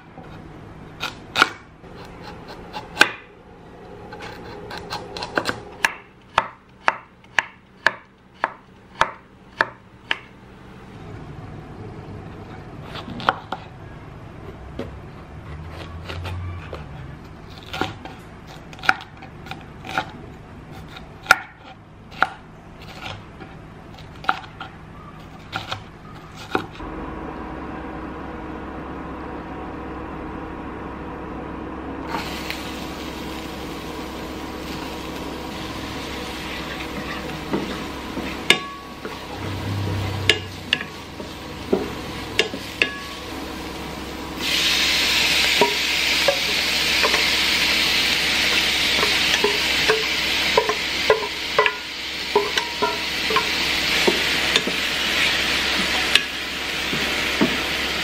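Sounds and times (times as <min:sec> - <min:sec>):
steady low hum: 0:00.0 - 0:25.2, 0:25.8 - 0:58.0
onion sizzling in oil: 0:32.1 - 0:58.0.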